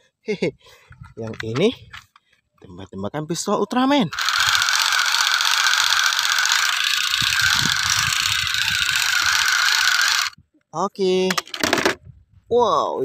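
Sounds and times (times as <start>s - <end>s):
toy pistol buzzing rattle: 4.1s - 10.4s.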